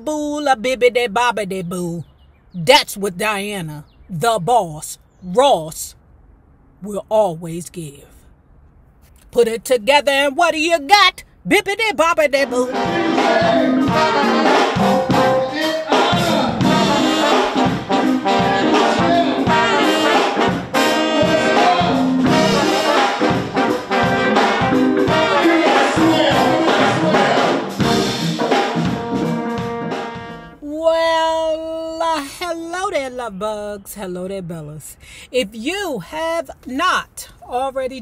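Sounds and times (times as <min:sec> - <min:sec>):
brass-led instrumental music: 0:12.4 - 0:30.6.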